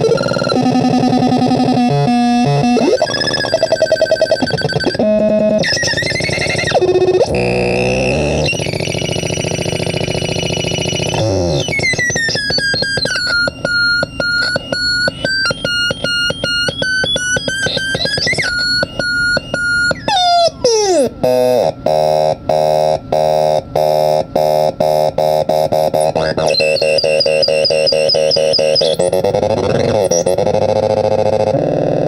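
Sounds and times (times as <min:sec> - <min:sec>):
synth tones gliding in pitch: 0:00.0 - 0:22.9
stuttering electronic bleeps: 0:00.0 - 0:32.0.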